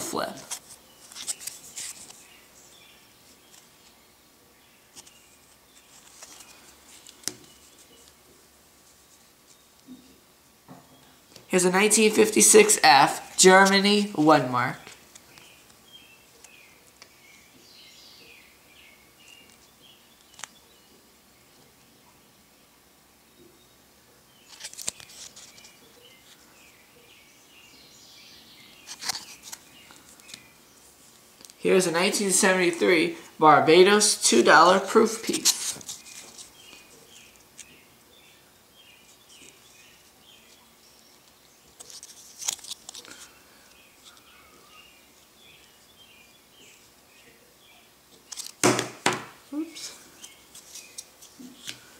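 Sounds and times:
faint bird chirps: 43.0s - 48.0s.

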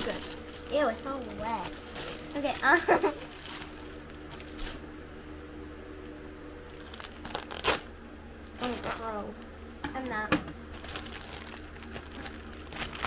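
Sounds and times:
plastic bag crinkling and tearing: 0.0s - 4.8s, 6.7s - 7.9s, 8.6s - 9.3s, 10.0s - 13.0s
room fan humming: 0.0s - 13.0s.

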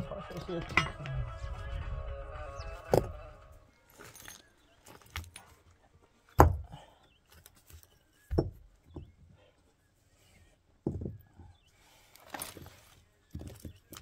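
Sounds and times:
rock and gravel scraping: 2.7s - 5.7s, 11.8s - 14.0s
stones knocking together: 6.3s - 9.1s, 13.3s - 14.0s.

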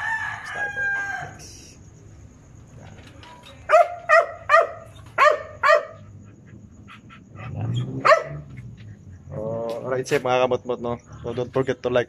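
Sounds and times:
dog barking: 3.7s - 6.2s, 7.4s - 8.6s.

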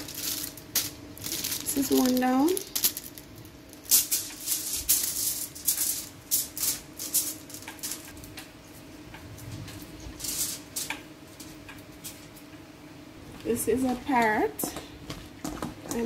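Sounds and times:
aluminium foil crinkling: 0.0s - 12.5s
steady low hum: 0.0s - 16.0s.

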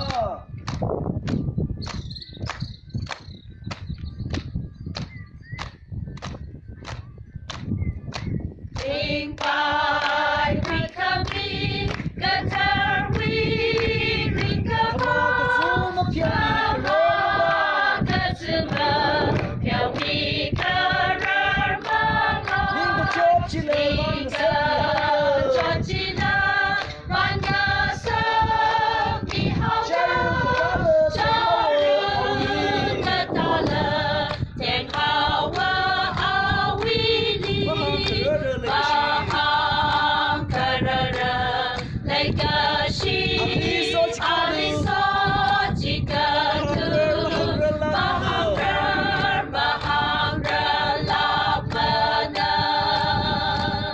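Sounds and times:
hands clapping: 0.0s - 17.0s, 18.1s - 28.2s, 32.4s - 41.9s, 43.0s - 43.6s, 48.3s - 53.8s
choir singing unaccompanied: 8.8s - 53.9s.

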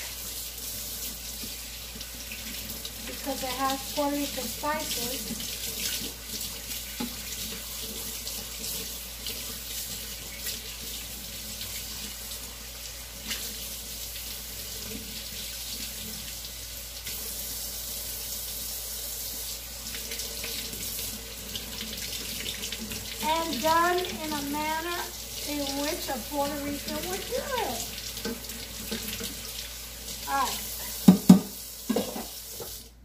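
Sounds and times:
tap running into sink: 5.2s - 8.8s, 27.8s - 29.6s, 30.9s - 32.8s.

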